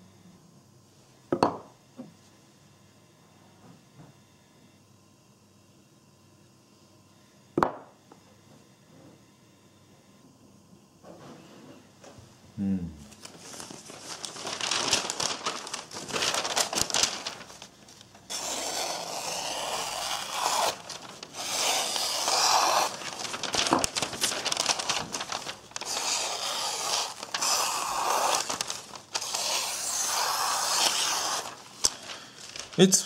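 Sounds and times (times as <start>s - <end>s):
paper crinkling: 13.1s - 33.0s
knife slicing paper: 13.2s - 32.9s.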